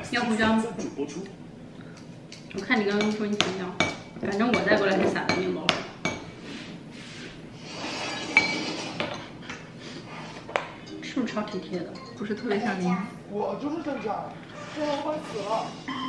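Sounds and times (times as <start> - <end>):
cutlery clinking on ceramic bowls: 2.6 - 5.5.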